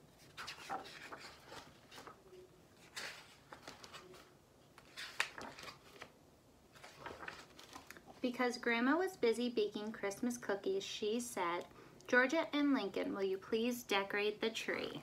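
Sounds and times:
book pages rustling: 0.0 - 8.2.

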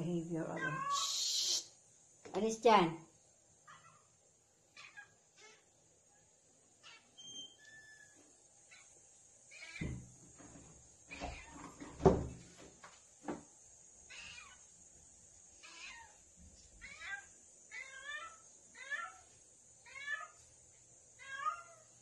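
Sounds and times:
cat meowing: 0.6 - 1.6, 4.7 - 5.7, 6.8 - 10.0, 11.1 - 11.6, 14.1 - 14.6, 15.6 - 16.2, 16.8 - 20.4, 21.2 - 21.9
knocks and thump: 9.8 - 13.5.

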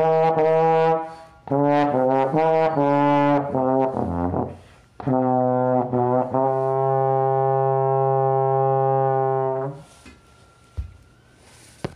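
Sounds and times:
low brass instrument notes: 0.0 - 9.9.

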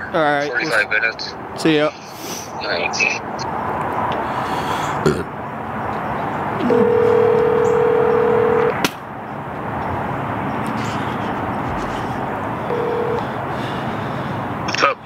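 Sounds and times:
telephone ringback tone: 6.6 - 8.7, 12.7 - 13.2.

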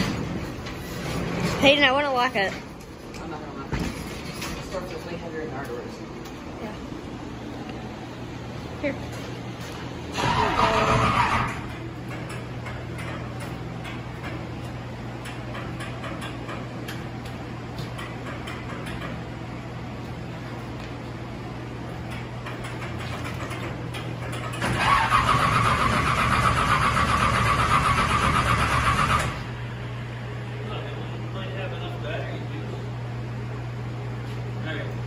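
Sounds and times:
steady low hum: 0.0 - 35.0
starter motor cranking engine: 10.1 - 11.8, 24.4 - 29.5.

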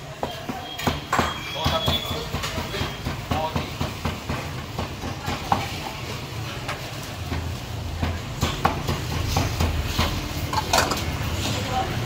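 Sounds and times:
cleaver chopping meat on wood: 0.2 - 5.7.

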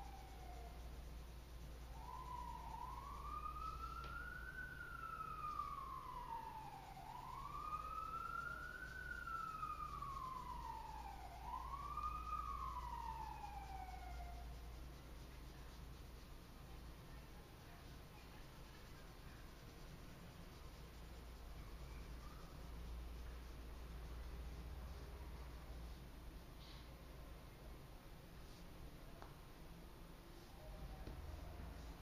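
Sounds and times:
faint siren wailing: 0.0 - 26.8, 30.3 - 32.0
faint hiss: 0.0 - 32.0.

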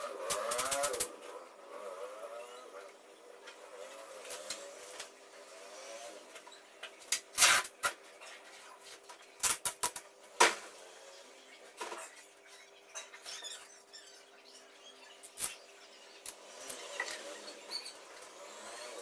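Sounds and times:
scissors snipping tape: 0.2 - 1.2
tape ripping and clicking: 0.2 - 1.2, 7.1 - 8.0.

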